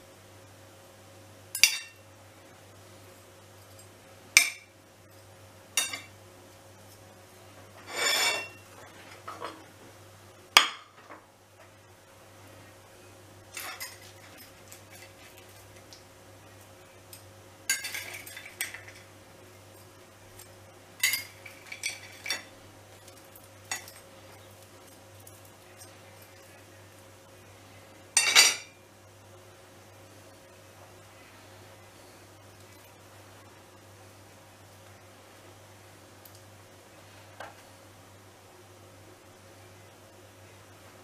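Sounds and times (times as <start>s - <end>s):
metal tongs clinking on plates: 1.6s - 2.0s, 5.8s - 6.1s, 13.5s - 15.6s, 17.1s - 19.0s, 20.4s - 22.5s, 23.1s - 24.0s, 28.2s - 28.7s.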